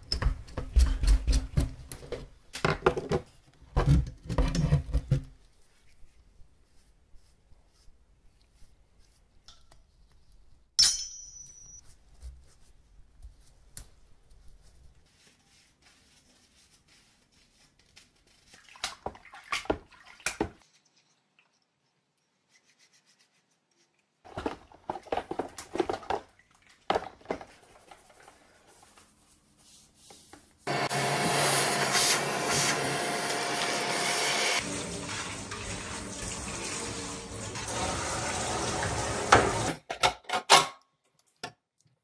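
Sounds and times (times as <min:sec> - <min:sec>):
soft dry brushing: 0:05.4 - 0:10.7, 0:11.8 - 0:19.0, 0:20.6 - 0:24.1, 0:27.6 - 0:30.7
metallic click and ring: 0:10.8 - 0:11.8
hands rubbing plastic in suds: 0:11.8 - 0:21.2, 0:24.3 - 0:30.8
brush scrubbing metal in water: 0:14.6 - 0:21.0, 0:34.6 - 0:39.7.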